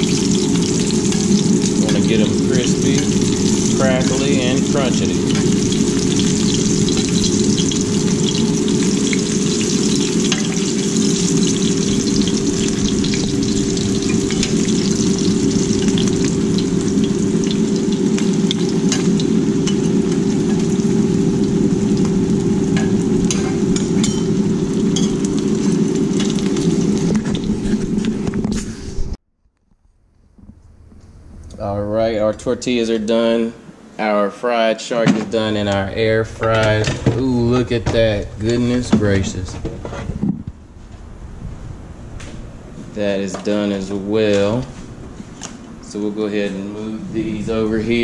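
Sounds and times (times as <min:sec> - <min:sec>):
fish sizzling in hot oil: 0:00.0 - 0:28.0
oil popping and crackling: 0:00.0 - 0:28.6
steady hum: 0:00.0 - 0:29.2, 0:29.8 - 0:48.0.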